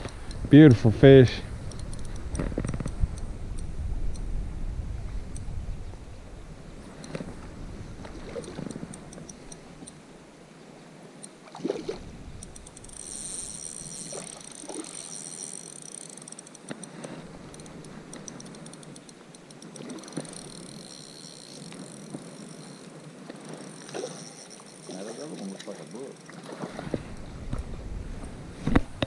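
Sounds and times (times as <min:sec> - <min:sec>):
small clicks: 0:01.6 - 0:04.3, 0:08.0 - 0:10.0, 0:12.4 - 0:26.4
stream water running: 0:06.1 - 0:28.5
faint high-pitched buzzing: 0:11.1 - 0:26.5.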